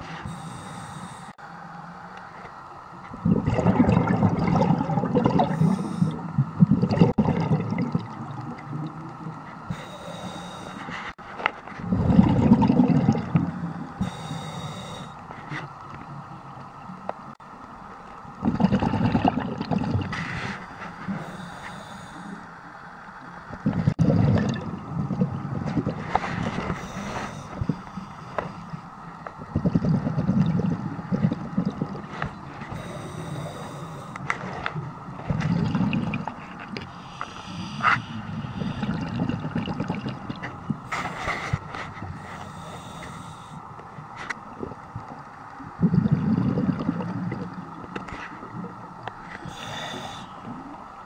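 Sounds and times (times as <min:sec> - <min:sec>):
regulator inhale hiss: 0:00.0 - 0:01.5, 0:05.5 - 0:06.4, 0:09.6 - 0:11.2, 0:13.6 - 0:15.7, 0:20.1 - 0:22.8, 0:26.0 - 0:29.1, 0:32.6 - 0:34.6, 0:36.8 - 0:39.2, 0:40.8 - 0:43.8, 0:49.1 - 0:50.8
exhaust bubbles rushing: 0:03.2 - 0:05.6, 0:06.4 - 0:08.6, 0:11.8 - 0:13.5, 0:18.4 - 0:20.1, 0:23.6 - 0:26.0, 0:38.6 - 0:40.4, 0:45.8 - 0:47.6.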